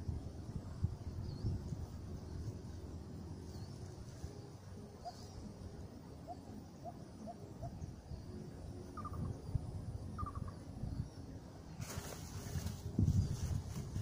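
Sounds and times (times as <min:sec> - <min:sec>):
low wind rumble on microphone: 0:00.0 - 0:14.0
bird chirping: 0:01.1 - 0:11.3
rustling noise: 0:11.8 - 0:14.0.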